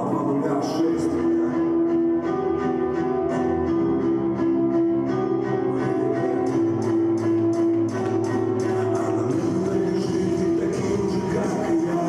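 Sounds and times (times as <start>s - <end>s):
walkout music with percussion beat: 6.5s - 12.0s.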